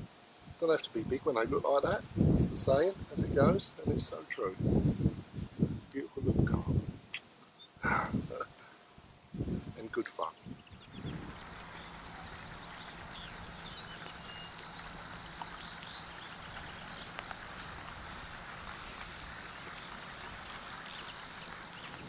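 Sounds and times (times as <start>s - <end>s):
steady soft hiss: 0.0s - 22.0s
faint bird chirps: 10.3s - 22.0s.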